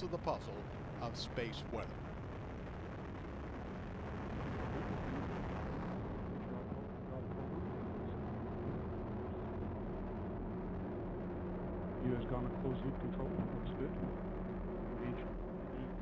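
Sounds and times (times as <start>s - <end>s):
rocket engine low rumbling: 0.0s - 16.0s.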